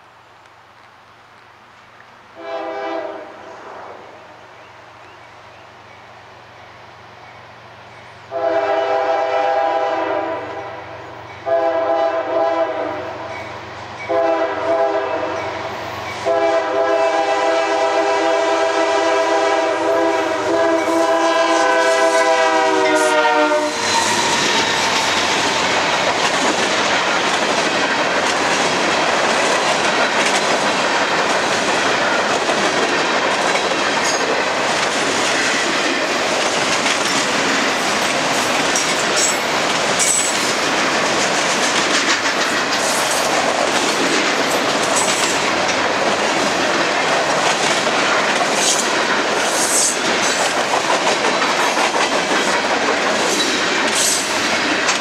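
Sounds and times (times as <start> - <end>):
locomotive air horn blasts: 2.4 - 3.4, 8.3 - 10.8, 11.4 - 13.2, 14.1 - 15.5, 16.2 - 25.0
train wheels clattering on rails: 13.2 - 55.0.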